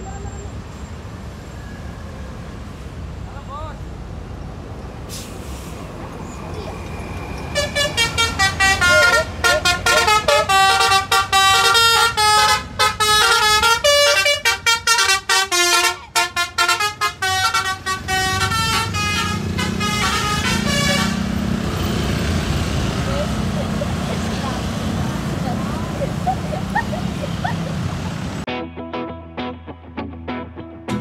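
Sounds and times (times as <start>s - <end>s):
vehicle engine hum: 0.0s - 28.5s
multi-tone bus horn melody: 7.5s - 21.9s.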